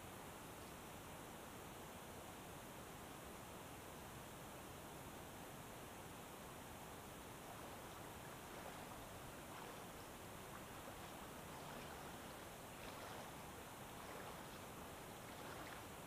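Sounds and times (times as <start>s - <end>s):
brook running water: 0.2s - 16.0s
soft water swishes: 6.1s - 16.0s.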